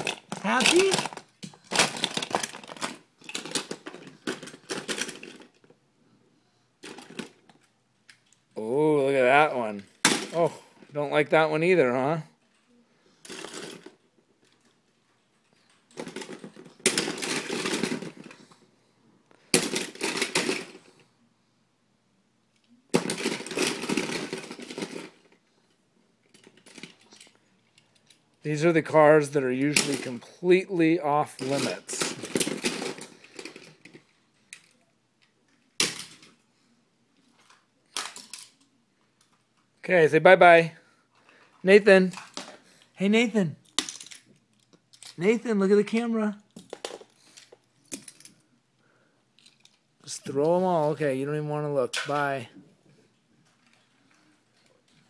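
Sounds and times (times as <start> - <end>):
toy cars rattling in plastic bin: 0.0 - 5.7, 6.8 - 7.6, 13.2 - 14.7, 15.9 - 18.6, 19.5 - 21.0, 23.0 - 25.4, 26.3 - 27.4, 28.0 - 30.3, 31.2 - 34.7
toy cars clattering: 0.0 - 5.8, 6.8 - 8.4, 11.8 - 18.6, 19.4 - 21.1, 22.6 - 36.4, 37.2 - 39.7, 41.1 - 43.0, 43.6 - 48.5, 49.4 - 51.1, 51.9 - 52.5, 53.4 - 55.0.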